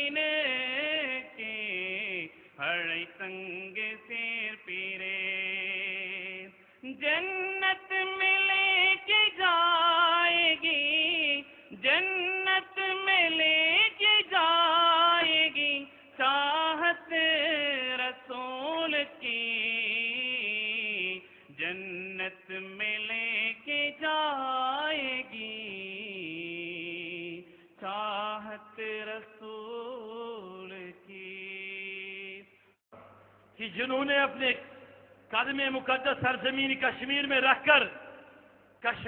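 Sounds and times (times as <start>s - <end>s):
man singing devotional poem: 0.0s - 39.0s.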